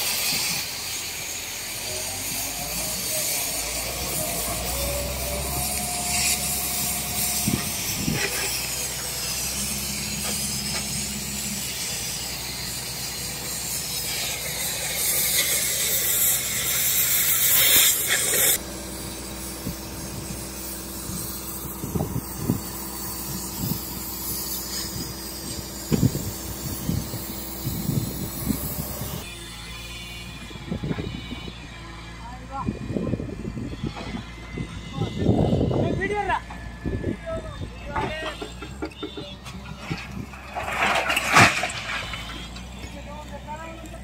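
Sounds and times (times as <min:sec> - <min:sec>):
cutting torch hissing: 0:00.0 - 0:32.2.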